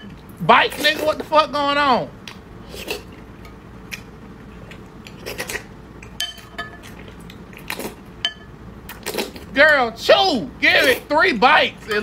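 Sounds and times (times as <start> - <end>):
spoon clinking against bowl: 6.2 - 6.9, 8.2 - 8.5.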